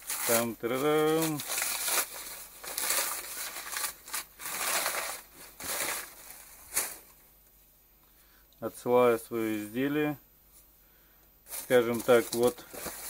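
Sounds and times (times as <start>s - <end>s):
plastic and paper crinkling and tearing: 0.0s - 7.2s, 11.5s - 13.0s.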